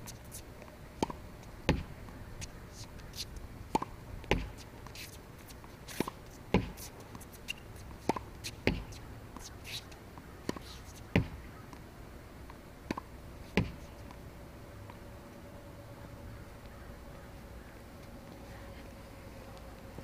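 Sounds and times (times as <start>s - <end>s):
ball bouncing on hard court: 1.0s - 1.9s, 3.7s - 4.6s, 6.0s - 6.8s, 8.1s - 9.5s, 11.2s - 11.5s, 12.9s - 13.8s
racket hitting tennis ball: 1.0s - 2.5s, 3.2s - 11.8s, 12.8s - 14.2s.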